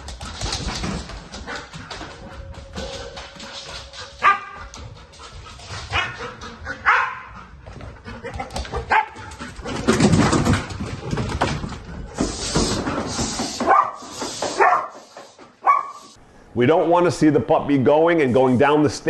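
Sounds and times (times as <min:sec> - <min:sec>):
dog barking: 0:04.2 - 0:04.6, 0:06.8 - 0:07.3, 0:08.9 - 0:09.2, 0:13.6 - 0:15.0, 0:15.6 - 0:16.2.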